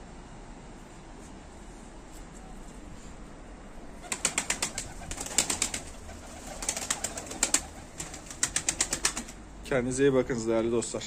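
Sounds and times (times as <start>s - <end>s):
pigeon wings clattering: 4.0s - 9.4s.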